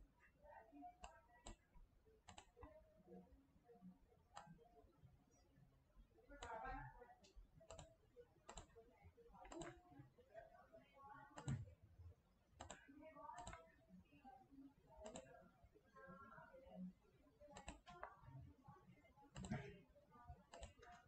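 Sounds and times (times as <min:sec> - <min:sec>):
computer mouse clicks: 0:01.0 - 0:02.8, 0:04.3 - 0:04.6, 0:07.2 - 0:08.8, 0:09.4 - 0:09.8, 0:11.4 - 0:11.7, 0:12.6 - 0:13.7, 0:15.0 - 0:15.4, 0:17.5 - 0:18.2, 0:19.3 - 0:19.8, 0:20.5 - 0:21.0.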